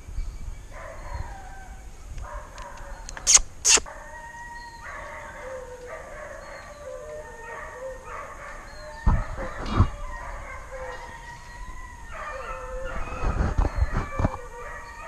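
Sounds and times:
hunting dogs baying and howling: 0.7 - 3.2, 3.8 - 15.0
short sharp loud noises: 3.2 - 3.9.

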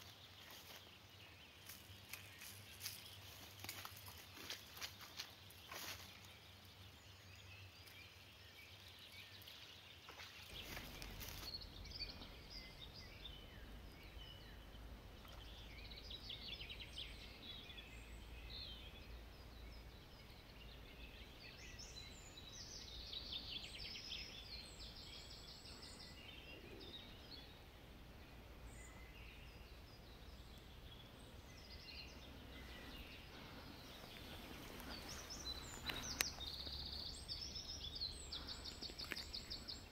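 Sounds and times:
faint songbirds singing: 0.0 - 39.9
steady low rumble: 10.5 - 20.2.

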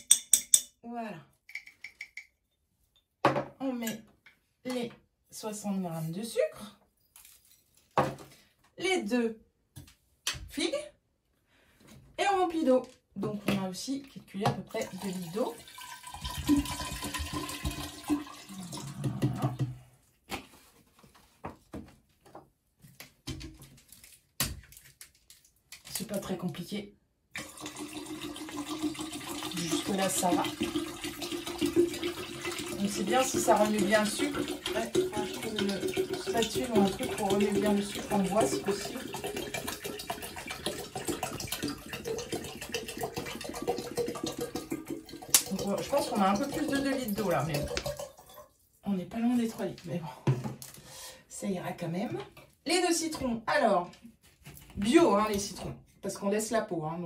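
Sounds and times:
water pouring into glass jar: 14.7 - 19.6, 27.4 - 48.6
plastic bottles clicking and knocking: 23.0 - 26.1, 32.8 - 48.3.

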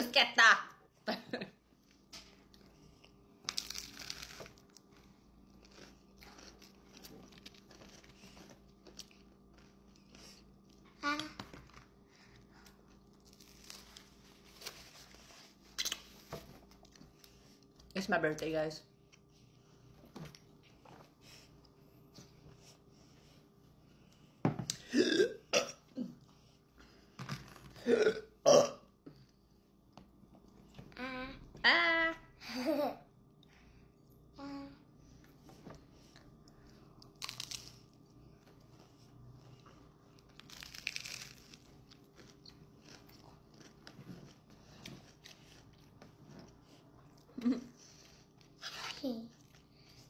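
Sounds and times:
chewing with small crunches: 1.8 - 18.0, 35.1 - 50.0
loud burping: 24.8 - 25.8, 27.8 - 28.8
crunch of biting toast: 37.1 - 38.0.

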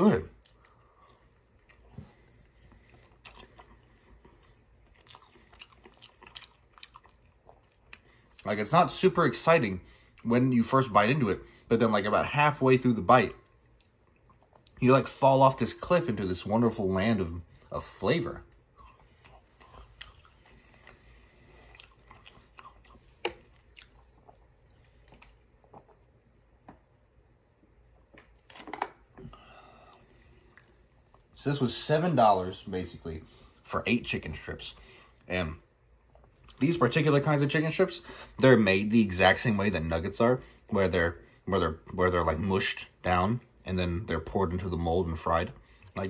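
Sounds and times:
chewing food: 0.3 - 8.6, 13.3 - 14.8, 17.4 - 26.8.

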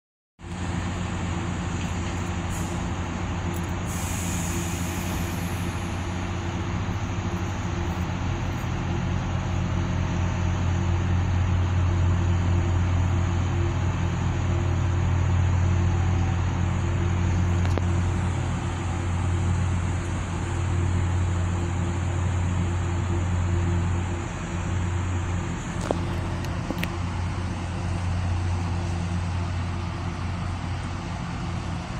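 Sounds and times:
trains humming at a platform: 0.4 - 31.9.

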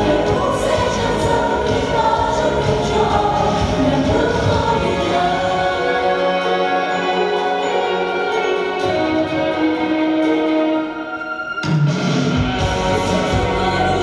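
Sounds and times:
choir holding sustained notes: 0.0 - 11.7.

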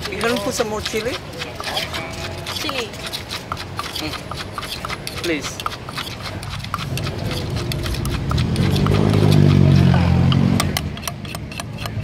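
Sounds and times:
wooden pestle knocking in mortar: 0.0 - 12.0
passing vehicle engine: 6.9 - 11.0.

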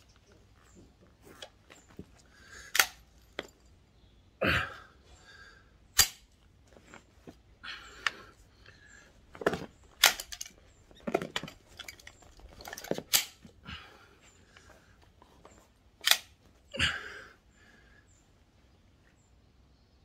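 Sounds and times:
air rifle bolt clicking: 2.7 - 3.0, 6.0 - 6.3, 16.0 - 16.4.

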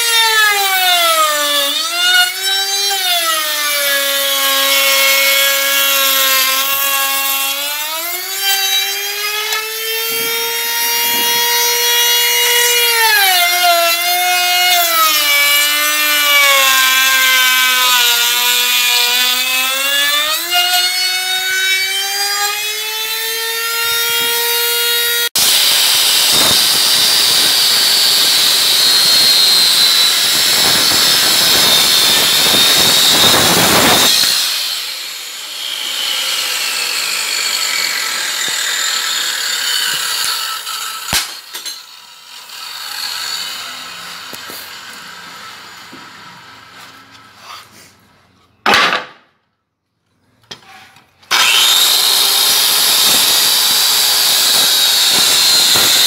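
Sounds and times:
circular saw cutting wood: 0.0 - 48.0, 50.6 - 56.0.

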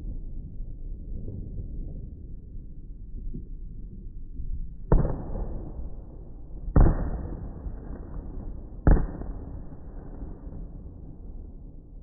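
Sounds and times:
long low rumble: 0.0 - 12.0
slowed firework bangs: 4.9 - 11.9.

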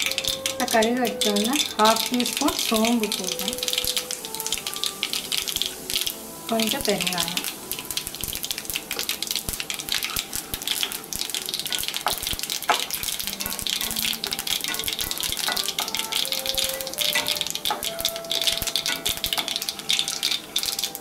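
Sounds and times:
hot oil sizzling in frying pan: 0.0 - 21.0
seeds popping in oil: 0.0 - 21.0.

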